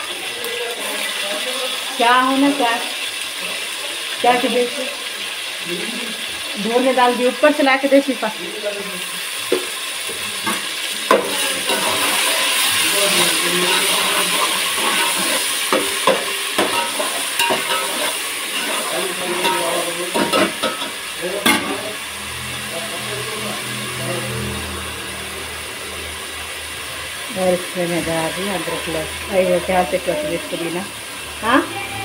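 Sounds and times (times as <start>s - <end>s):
onions sizzling in hot oil: 0.0s - 32.0s
spoon scraping a pot: 13.3s - 20.9s.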